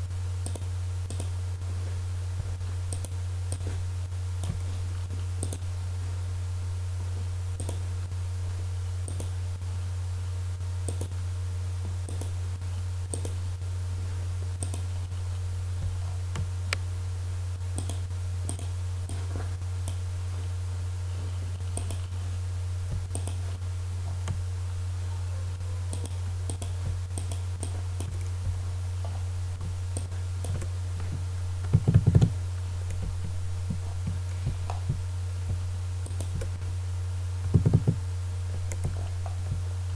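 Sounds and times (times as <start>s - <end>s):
low electrical hum: 0.0s - 39.9s
computer mouse and keyboard clicks: 0.4s - 1.4s, 2.9s - 3.7s, 5.4s - 5.7s, 7.6s - 7.8s, 9.1s - 9.4s, 10.9s - 11.2s, 12.1s - 12.4s, 13.1s - 13.4s, 14.6s - 15.0s, 17.8s - 20.0s, 21.7s - 22.2s, 23.0s - 23.6s, 25.9s - 28.3s, 31.6s - 33.1s, 36.0s - 36.5s.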